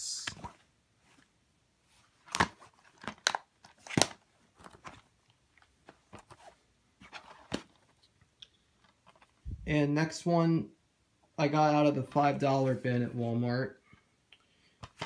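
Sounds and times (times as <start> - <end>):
plastic cases clicking and clacking: 2.3 - 5.1.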